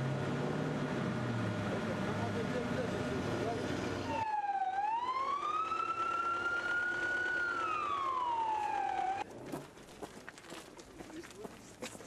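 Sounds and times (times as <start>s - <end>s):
siren wailing: 4.0s - 9.3s.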